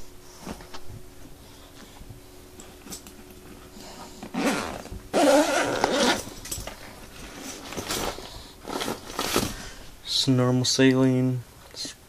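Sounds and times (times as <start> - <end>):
zipper pulled open: 4.3 - 6.3
nylon fabric rustling: 4.3 - 9.8.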